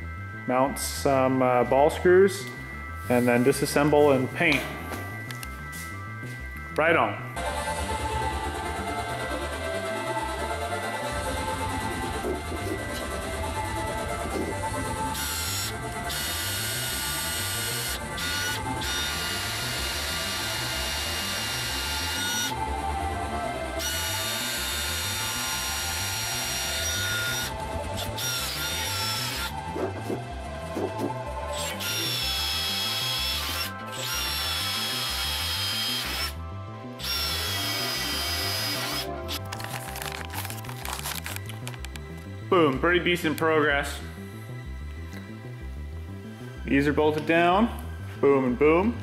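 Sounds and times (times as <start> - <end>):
power drill boring into steel: 15.2 - 22.6, 23.8 - 29.5, 31.5 - 36.4, 37.0 - 39.4.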